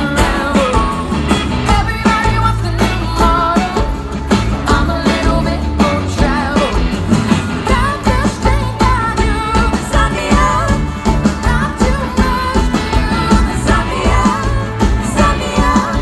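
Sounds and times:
banjo: 0.0s - 16.0s
drum beat: 0.0s - 16.0s
electric guitars: 0.0s - 16.0s
woman singing: 0.0s - 16.0s.

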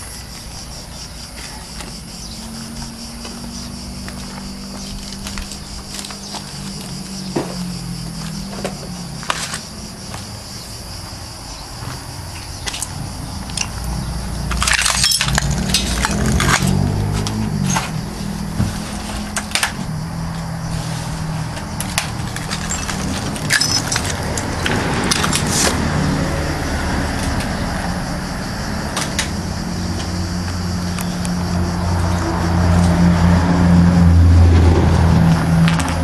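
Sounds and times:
broken glass clinking and crunching: 14.5s - 16.8s, 21.8s - 25.5s.

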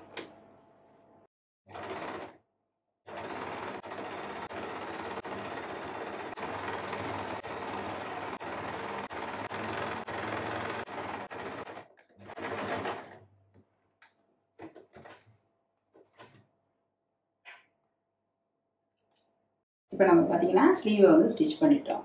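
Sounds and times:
electric sewing machine running: 1.7s - 2.4s, 3.1s - 13.2s.

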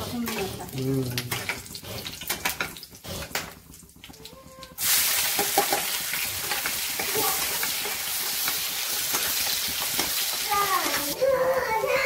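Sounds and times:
metal spatula scraping: 0.0s - 3.5s
onion sizzling in hot oil: 0.0s - 12.0s.

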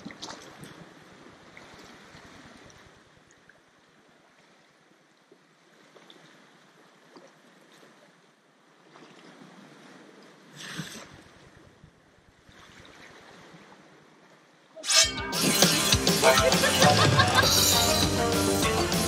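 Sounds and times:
water splashes: 0.0s - 11.7s.

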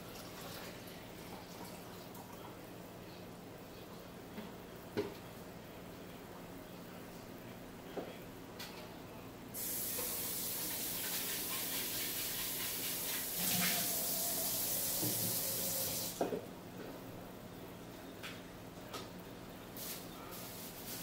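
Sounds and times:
tap water running: 0.0s - 2.3s, 9.6s - 16.4s
tap shutting off knock: 14.8s - 16.4s.

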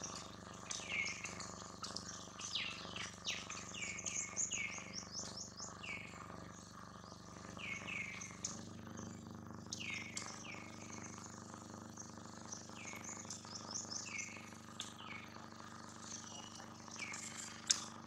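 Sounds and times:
bird chirping: 0.0s - 17.8s
faint steady hum: 0.0s - 18.0s.

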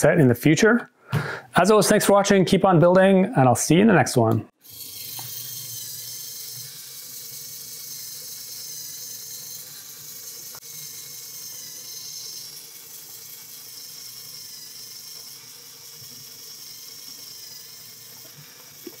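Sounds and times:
small electric motor whirring: 4.6s - 19.0s.

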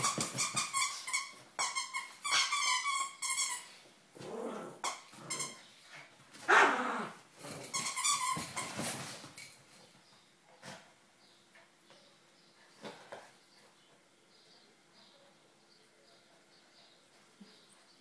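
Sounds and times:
dogs growling: 4.1s - 5.4s, 6.5s - 7.7s
small dogs barking and yapping: 6.4s - 7.2s.

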